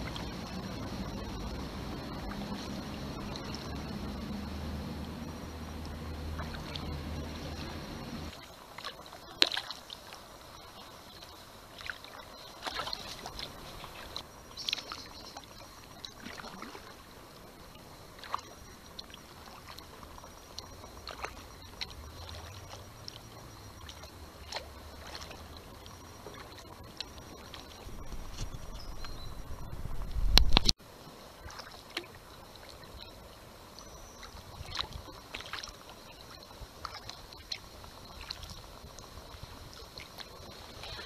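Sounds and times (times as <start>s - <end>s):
low rumble: 0.0s - 8.4s, 27.8s - 30.8s
paddle drips and splashes: 0.0s - 41.0s.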